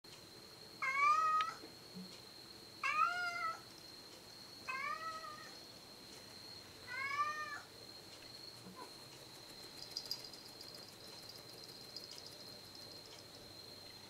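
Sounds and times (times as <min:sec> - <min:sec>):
cat meowing: 0:04.7 - 0:05.5, 0:06.9 - 0:07.7.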